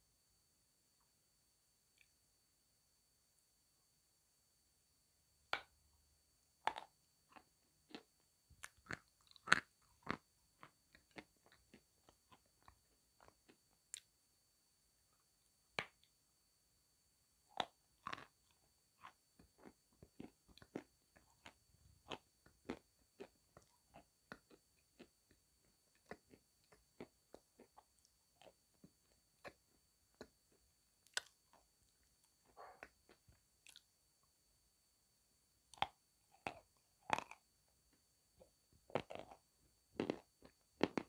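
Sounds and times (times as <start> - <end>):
chalk crunching in chewing: 6.7 - 14.1, 17.5 - 25.1, 38.9 - 39.4, 40.0 - 41.0.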